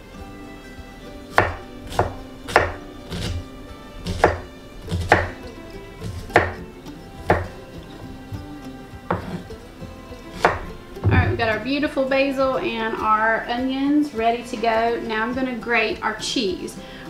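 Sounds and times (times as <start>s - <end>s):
knife chopping on wooden board: 1.4s - 3.4s, 4.0s - 6.6s, 7.2s - 7.6s, 9.1s - 9.5s, 10.3s - 11.5s.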